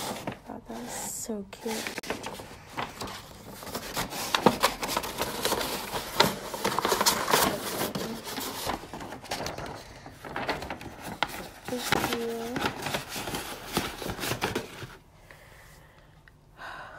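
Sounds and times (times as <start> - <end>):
paper wrapping rustling: 0.0 - 15.1.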